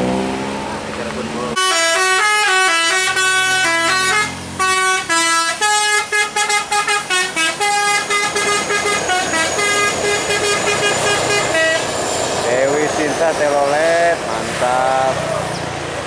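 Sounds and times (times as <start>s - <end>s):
multi-tone bus horn melody: 1.6s - 12.0s.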